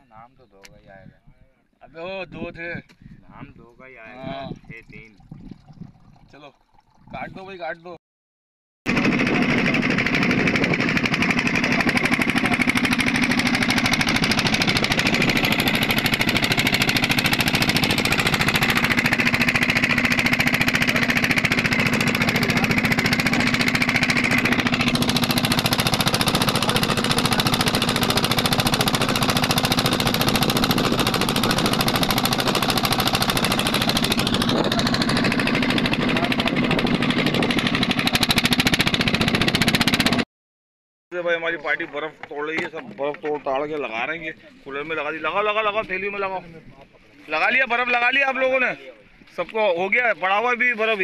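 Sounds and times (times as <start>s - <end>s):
boat engine running: 3.4s - 7.4s, 8.9s - 40.2s.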